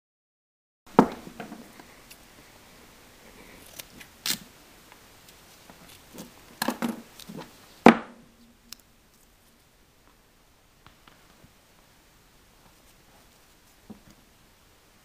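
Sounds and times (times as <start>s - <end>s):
scissors snipping tape: 3.6s - 4.4s
duct tape ripping off roll: 3.6s - 4.5s.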